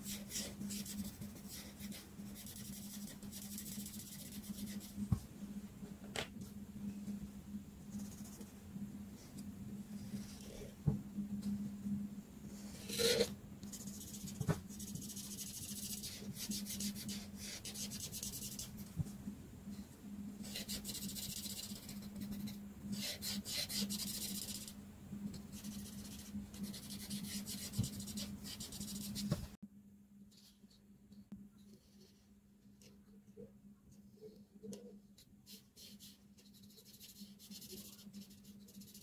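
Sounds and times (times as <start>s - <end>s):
marker scratching on paper: 0.0s - 5.0s, 12.8s - 18.8s, 20.4s - 24.7s, 25.5s - 29.5s, 35.5s - 39.0s
steady low hum: 0.0s - 39.0s.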